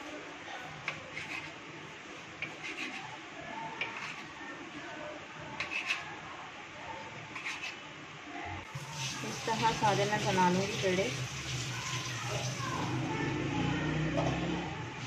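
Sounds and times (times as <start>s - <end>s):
knife cutting dough: 0.8s - 1.6s, 2.4s - 3.2s, 3.8s - 4.4s, 5.6s - 6.1s, 7.3s - 7.8s
knife tapping and scraping on stone: 3.8s - 4.2s, 5.6s - 6.0s.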